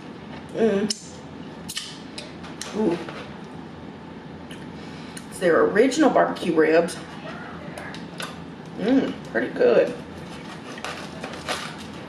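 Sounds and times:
wet mouth clicks and smacks: 0:01.7 - 0:02.3.

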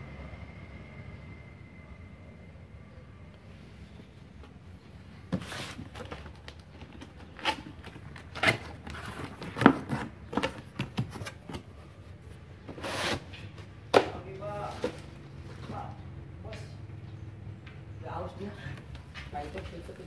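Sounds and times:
cardboard flap rustling: 0:05.2 - 0:11.8
cardboard scrapes and knocks: 0:05.3 - 0:06.4, 0:07.0 - 0:11.6, 0:12.7 - 0:13.4
packing tape ripping: 0:05.5 - 0:10.1.

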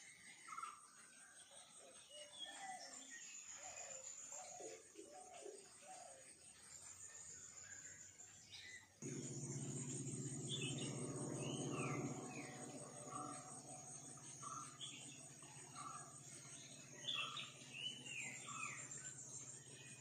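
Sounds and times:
insects trilling: 0:09.0 - 0:20.0
low drone: 0:09.0 - 0:20.0.

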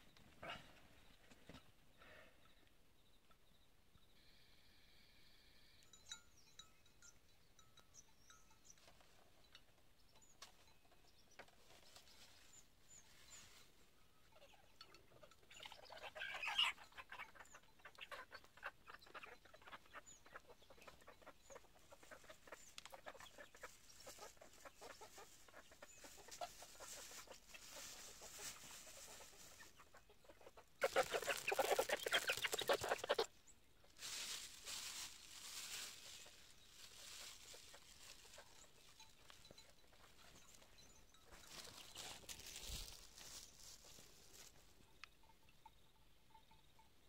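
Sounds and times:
chicken clucking: 0:14.3 - 0:44.7
plastic bag rustling: 0:34.0 - 0:38.3, 0:41.4 - 0:44.5.

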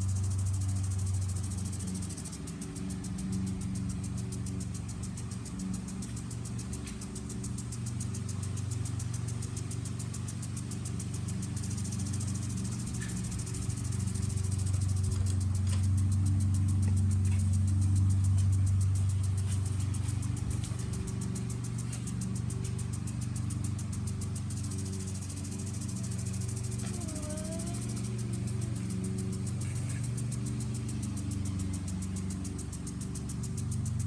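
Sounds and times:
fast high-pitched ticking: 0:00.0 - 0:34.0
lawn mower engine running: 0:00.0 - 0:34.0.

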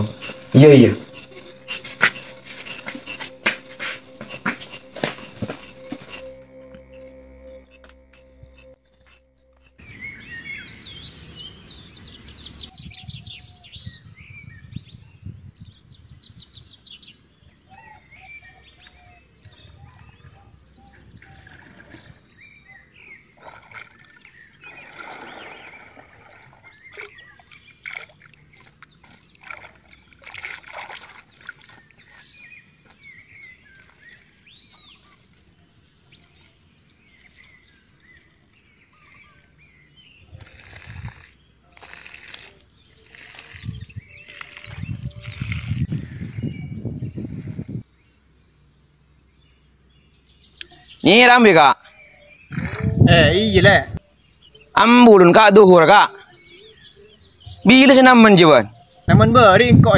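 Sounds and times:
birds chirping and trilling: 0:00.0 - 0:59.9
water splashing: 0:23.4 - 0:32.2.

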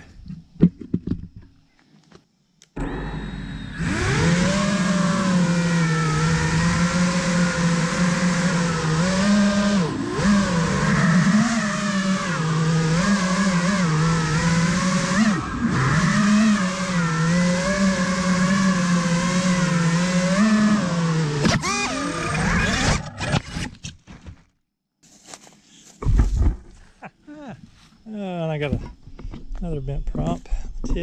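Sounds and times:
quadcopter motors whining: 0:02.8 - 0:23.7.

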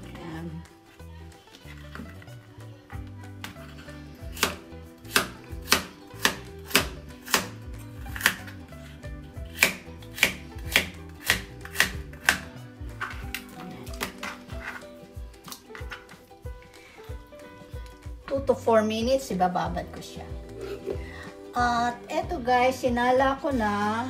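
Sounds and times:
knife slicing on cutting board: 0:04.3 - 0:08.6.

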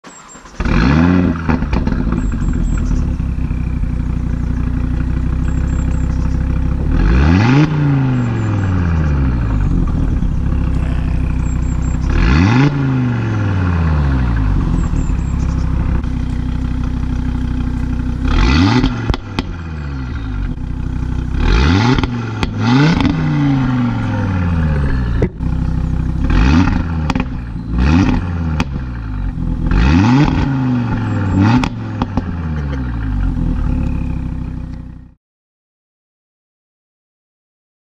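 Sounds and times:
car engine revving: 0:00.1 - 0:35.1
exhaust crackles and pops: 0:00.3 - 0:13.3, 0:14.2 - 0:34.9.

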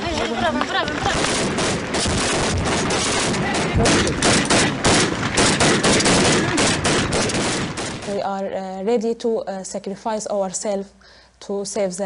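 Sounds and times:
rapid rifle gunfire: 0:01.0 - 0:08.2.

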